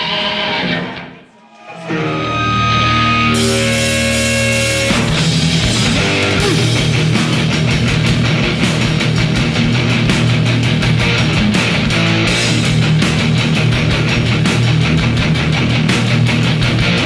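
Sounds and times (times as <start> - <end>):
live metal band: 0.0 - 17.0
ringing guitar and bass notes: 0.0 - 17.0
cymbals: 1.4 - 7.7.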